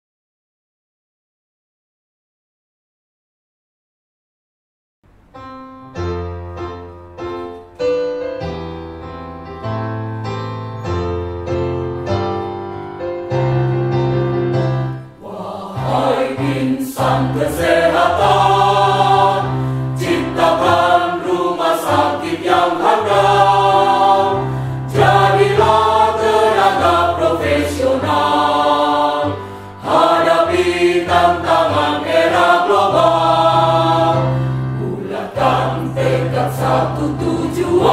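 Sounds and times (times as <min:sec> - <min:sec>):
keyboard chords: 0:05.1 - 0:37.9
mixed choir singing a march: 0:15.2 - 0:37.9.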